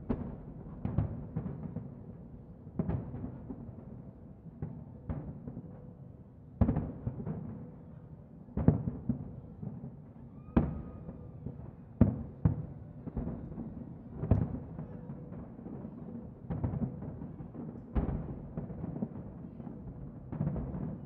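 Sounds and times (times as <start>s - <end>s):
fireworks booming: 16.4s - 21.0s.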